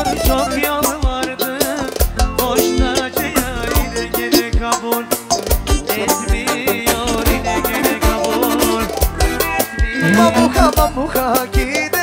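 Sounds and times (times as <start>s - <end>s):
steady drum beat: 0.0s - 11.7s
wavering lead melody: 5.7s - 11.4s.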